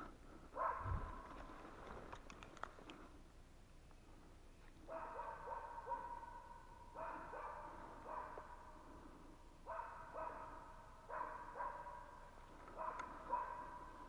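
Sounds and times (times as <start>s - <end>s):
dogs barking faintly: 4.6s - 14.0s.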